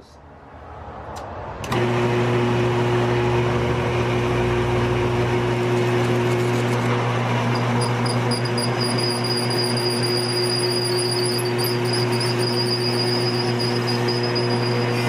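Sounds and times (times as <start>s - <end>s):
drill press motor humming: 3.0s - 15.0s
drill bit drilling brass: 5.8s - 15.0s
thin high whine: 7.5s - 15.0s.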